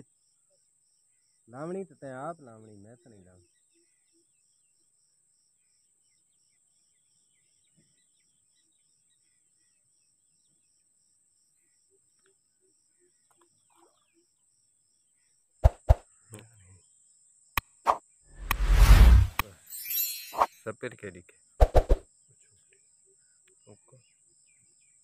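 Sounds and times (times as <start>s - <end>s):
faint high insect drone: 0.0s - 15.5s.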